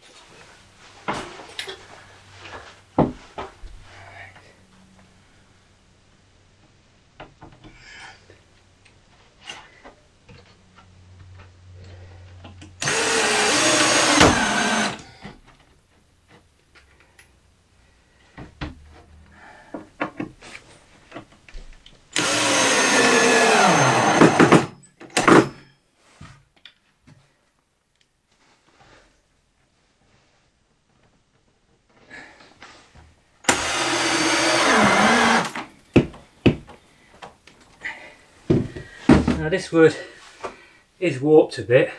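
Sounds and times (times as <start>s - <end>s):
power drill driving screws: 12.8s - 15.1s, 22.1s - 25.6s, 33.4s - 35.7s.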